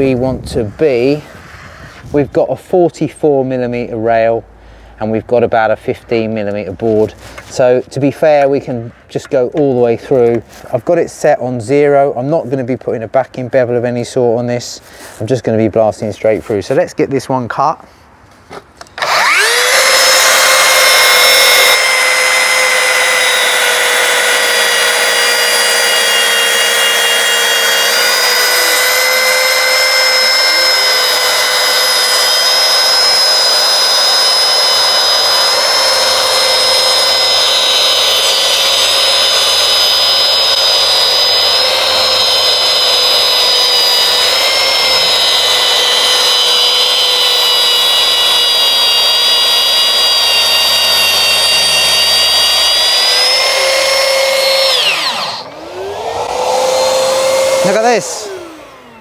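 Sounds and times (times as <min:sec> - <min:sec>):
plunge saw motor whine: 0:18.8 - 0:59.0
dust extractor running: 0:18.9 - 0:59.0.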